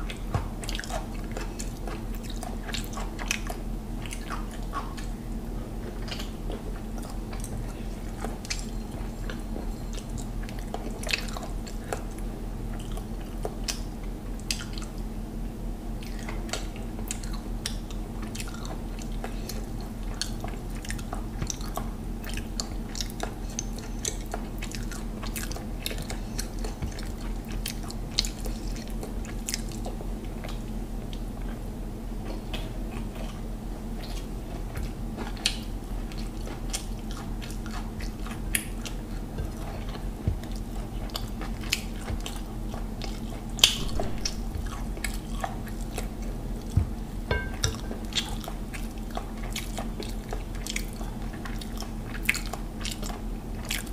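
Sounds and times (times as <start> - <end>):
person chewing food: 0.0 - 15.1, 15.9 - 53.9
low hum: 37.6 - 49.6.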